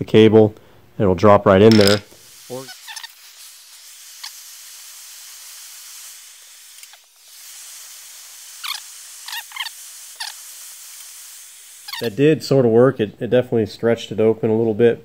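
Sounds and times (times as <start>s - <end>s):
gas torch hissing: 1.8s - 12.7s
short high squeaks: 2.5s - 3.2s, 8.6s - 10.4s, 11.8s - 12.2s.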